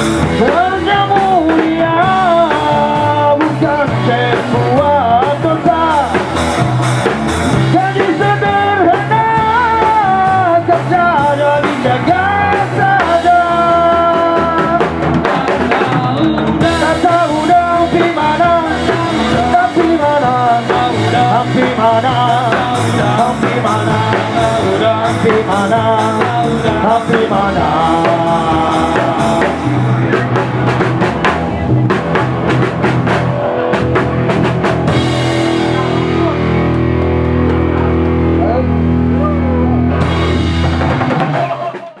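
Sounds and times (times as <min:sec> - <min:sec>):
person singing: 0:00.0 - 0:32.2
drum and cymbal hits: 0:00.0 - 0:38.6, 0:40.0 - 0:42.0
live rock band playing: 0:00.0 - 0:42.0.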